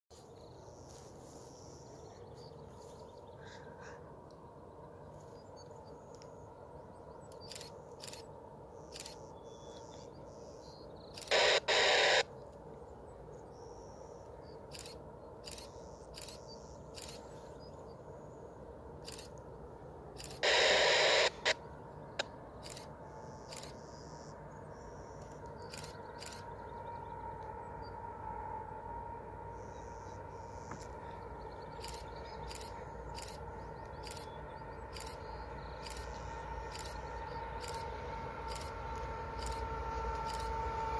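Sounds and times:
distant freight train rumble: 0.2s - 40.9s
harsh bird calls: 8.8s - 12.4s, 20.2s - 27.1s.

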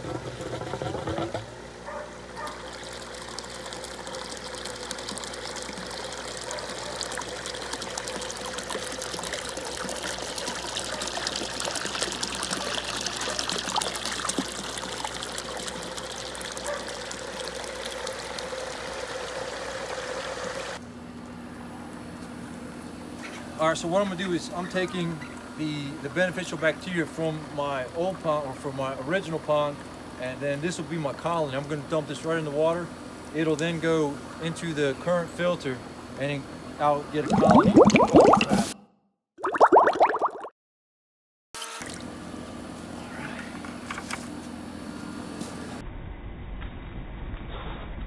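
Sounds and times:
water gushing and splashing: 37.2s - 38.8s, 39.4s - 40.5s.

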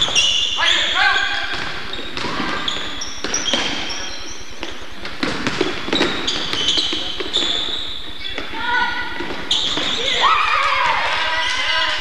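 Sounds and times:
sneakers squeaking: 0.0s - 10.7s
basketball bouncing on wooden floor: 1.5s - 3.8s, 4.6s - 7.6s.

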